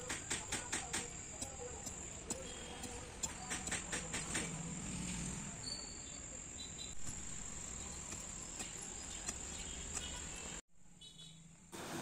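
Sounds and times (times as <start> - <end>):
crickets trilling: 5.6 - 10.6.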